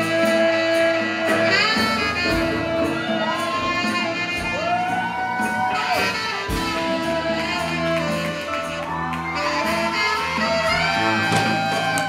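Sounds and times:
jazz band horns sliding: 0.0s - 12.0s.

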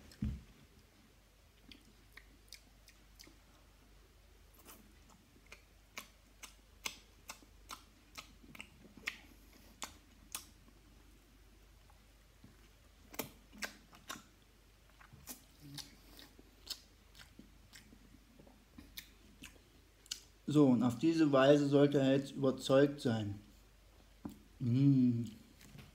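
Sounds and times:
wet mouth smacks and chewing: 1.6s - 3.4s, 4.6s - 10.6s, 13.1s - 18.1s, 18.8s - 20.3s.

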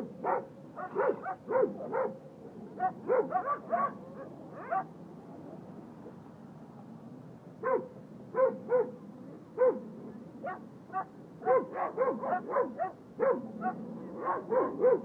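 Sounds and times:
small dog barking: 0.2s - 2.2s, 2.8s - 4.9s, 7.6s - 9.0s, 9.6s - 9.8s, 10.4s - 15.0s.

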